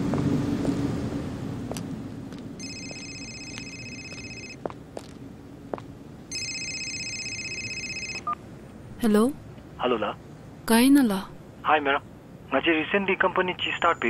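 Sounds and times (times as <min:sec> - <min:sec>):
mobile phone ringing: 0:02.6 - 0:04.6, 0:06.3 - 0:08.4.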